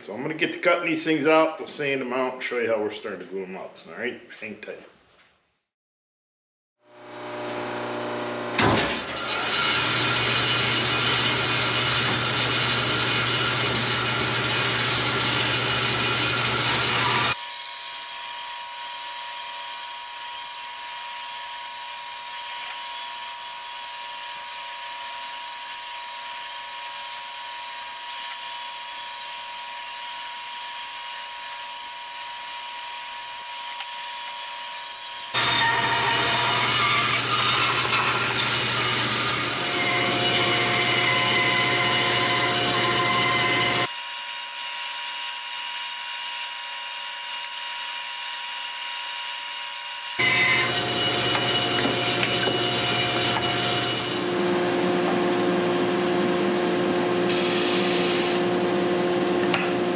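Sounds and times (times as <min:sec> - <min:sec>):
bandsaw motor hum: 0:06.8 - 0:56.1
saw blade whining through wood: 0:06.9 - 0:54.4.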